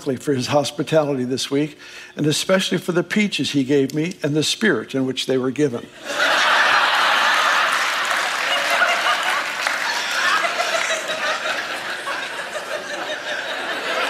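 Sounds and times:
crowd laughing: 6.0 - 14.0
crowd applauding: 6.3 - 14.0.

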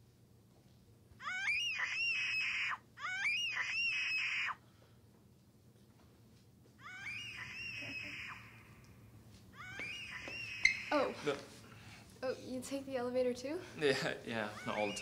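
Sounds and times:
man wailing in pain: 14.4 - 15.0.

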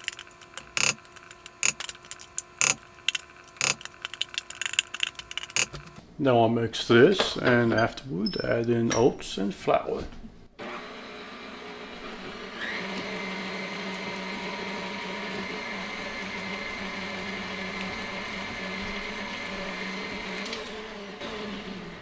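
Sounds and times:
stand mixer motor whine: 10.6 - 22.0.

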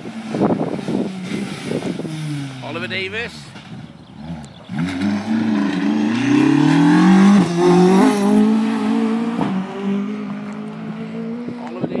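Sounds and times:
rally car accelerating past: 4.2 - 11.7.

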